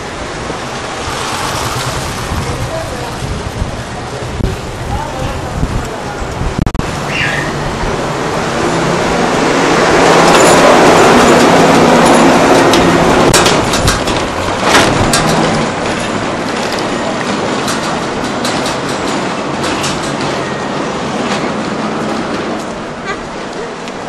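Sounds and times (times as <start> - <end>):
truck engine passing: 0.0 - 4.3
street noise: 0.0 - 24.0.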